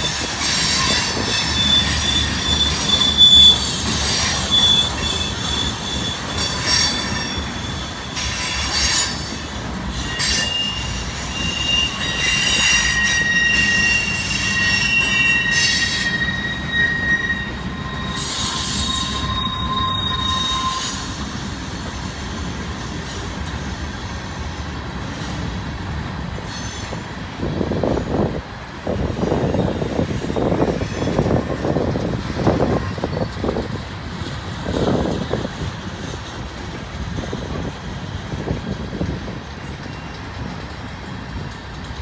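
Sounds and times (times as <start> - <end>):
wheel squeal: 0.0 - 22.2, 39.5 - 41.5
freight cars rumbling: 0.0 - 42.0
wheels clanking on rails: 0.0 - 42.0.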